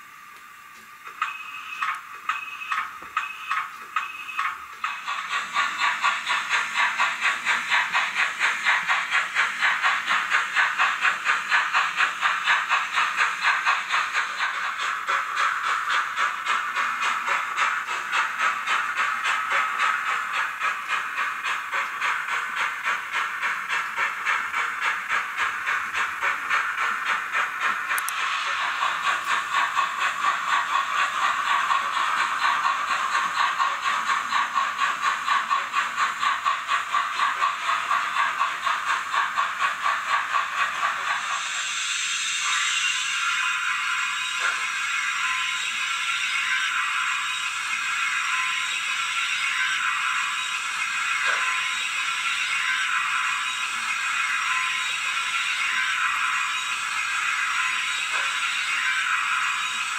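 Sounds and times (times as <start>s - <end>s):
model steam locomotive chuffs: 0.0s - 59.9s.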